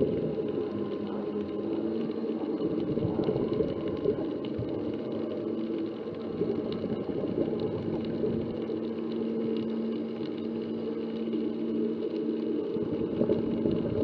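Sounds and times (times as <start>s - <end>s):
faint hum: 0.0s - 14.0s
muffled underwater rumble: 0.0s - 14.0s.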